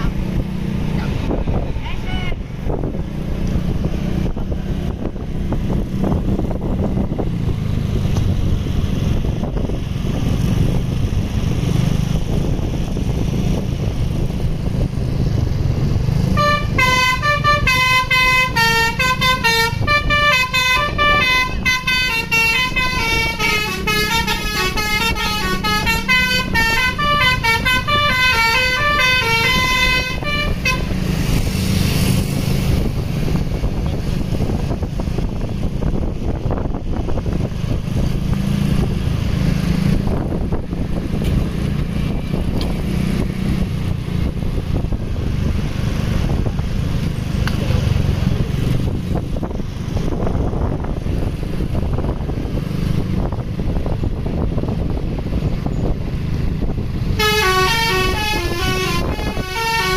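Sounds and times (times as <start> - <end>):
engines low rumble: 0.0 - 59.9
bus musical horn melody: 16.3 - 31.4, 57.1 - 59.9.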